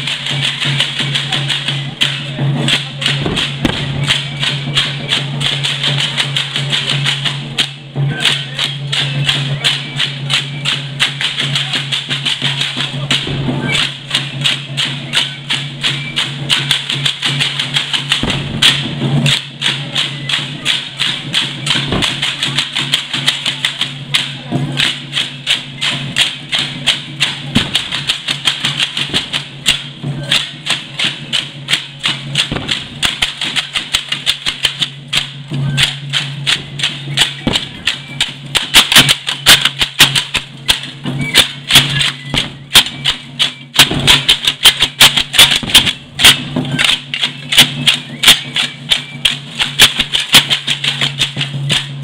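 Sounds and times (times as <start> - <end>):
drum beat: 0.0 - 52.0
hand rattles clicking: 24.8 - 52.0.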